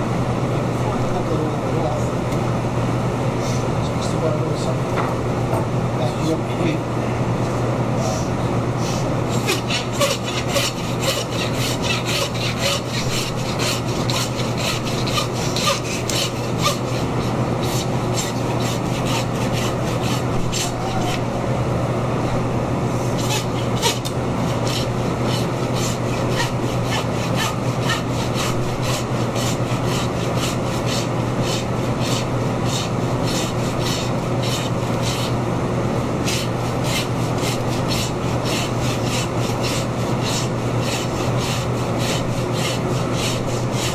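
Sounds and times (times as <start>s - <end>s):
hand saw cutting through bone: 9.3s - 21.2s, 23.2s - 35.4s, 36.2s - 43.9s.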